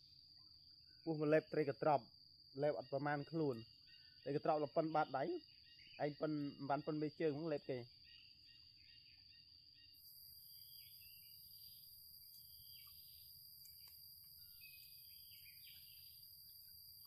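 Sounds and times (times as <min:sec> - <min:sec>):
high insect drone: 0:00.0 - 0:17.0
bird chirps: 0:02.6 - 0:17.0.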